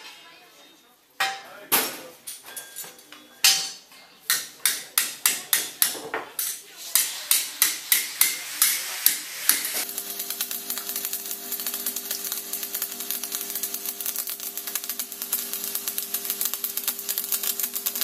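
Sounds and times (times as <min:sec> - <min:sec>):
arc welder crackling: 0:04.4 - 0:18.0
welding machine hum: 0:08.7 - 0:18.0.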